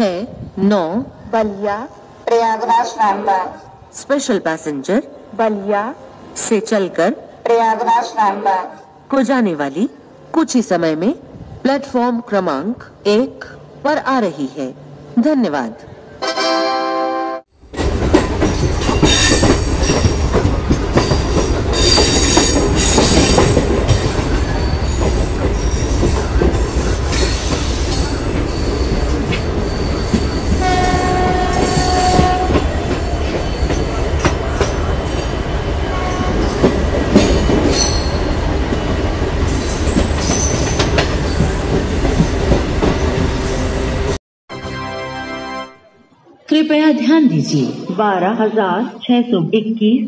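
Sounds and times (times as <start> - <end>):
locomotive engine and wheels rumble: 17.6 - 44.2
train horn blast: 30.6 - 32.8.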